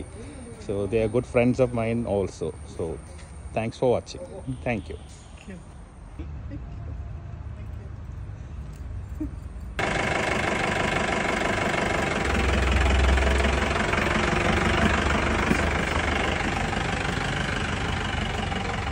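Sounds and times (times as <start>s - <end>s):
diesel engine running: 9.8s - 18.9s.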